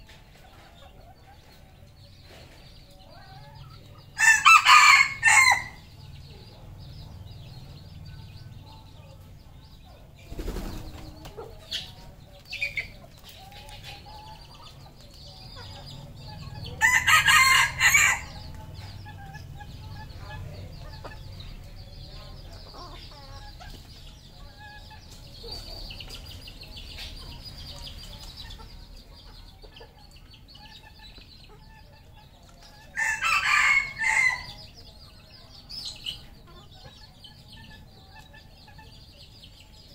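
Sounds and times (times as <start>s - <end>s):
soft clucking and chirping: 0.0s - 39.9s
roosters crowing: 3.5s - 6.2s, 15.9s - 19.1s, 32.8s - 34.8s.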